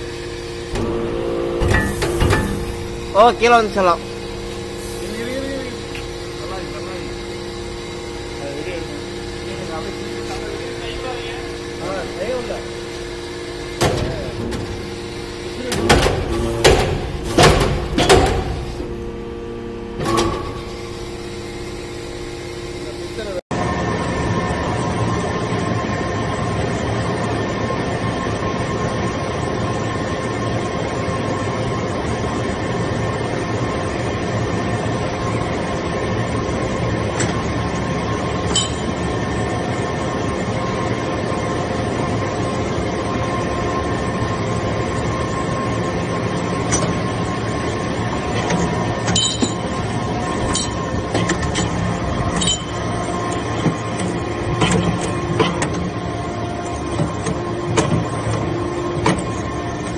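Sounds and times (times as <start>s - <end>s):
hydraulic press humming: 0.0s - 26.5s, 29.4s - 59.9s.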